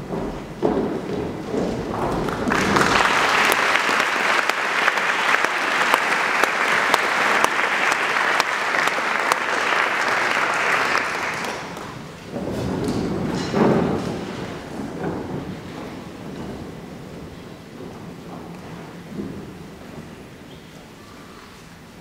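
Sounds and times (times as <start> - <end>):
audience applause: 2.0 - 13.7.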